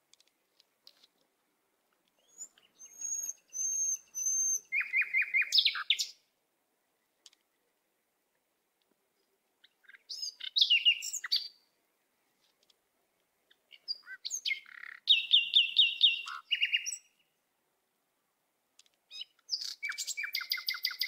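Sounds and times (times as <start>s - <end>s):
small songbird chirping: 2.0s - 7.9s, 9.1s - 17.4s, 18.8s - 21.0s.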